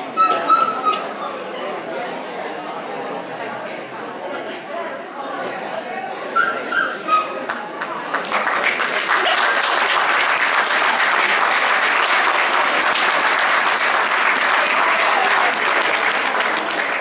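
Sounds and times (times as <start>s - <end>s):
audience applauding: 7.5s - 17.0s.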